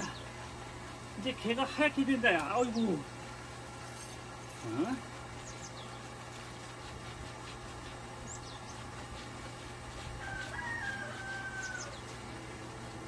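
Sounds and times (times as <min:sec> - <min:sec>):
steady low hum: 0:00.0 - 0:13.0
rooster crowing: 0:10.2 - 0:12.3.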